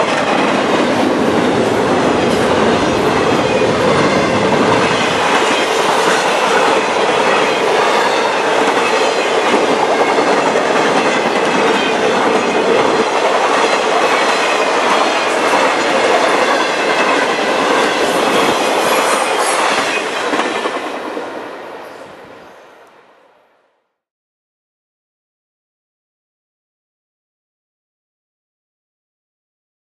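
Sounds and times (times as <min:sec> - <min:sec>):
train wheels clattering on rails: 0:00.0 - 0:22.1.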